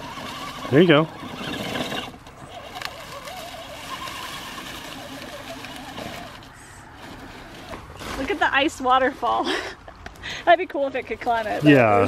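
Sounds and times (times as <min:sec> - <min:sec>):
toy car electric motor whining: 0:00.0 - 0:08.1.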